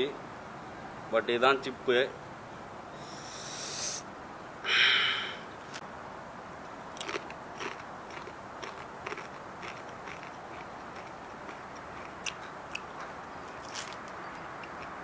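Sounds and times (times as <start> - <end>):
chip crunching: 7.0 - 15.0.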